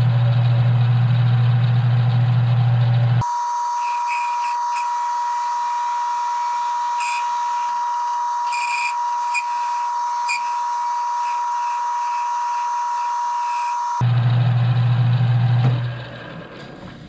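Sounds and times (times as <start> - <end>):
lathe running with high whine: 0.0 - 16.4
cutting tool scraping metal: 3.2 - 14.0.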